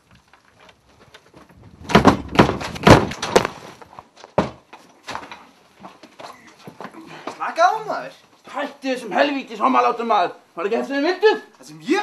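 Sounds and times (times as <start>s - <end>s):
banging on a door: 1.8s - 3.5s.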